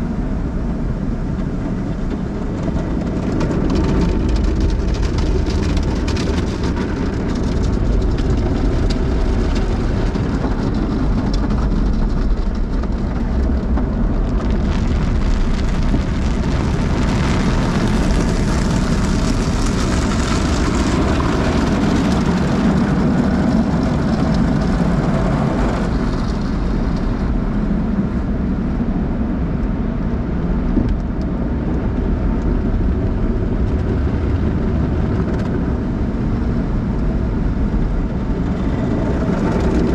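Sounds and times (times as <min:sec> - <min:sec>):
low rumble: 0:00.0 - 0:39.9
water spraying on car: 0:00.1 - 0:28.6.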